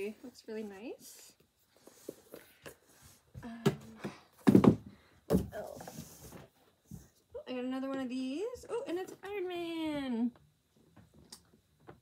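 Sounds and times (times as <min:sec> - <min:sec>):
items thudding in cardboard box: 0:04.4 - 0:05.6.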